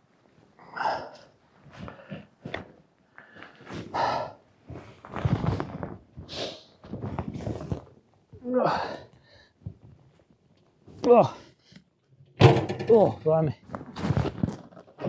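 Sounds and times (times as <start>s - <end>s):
person breathing: 0.7s - 2.4s, 3.1s - 5.1s, 8.6s - 9.8s.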